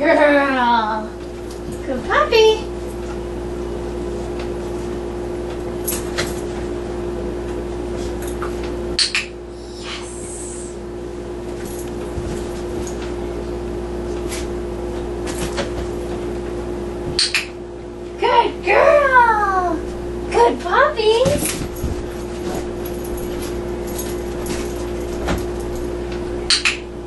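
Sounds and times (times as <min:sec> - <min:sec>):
steady hum: 0:00.0 - 0:27.0
dog's paws on hard box: 0:21.2 - 0:25.9.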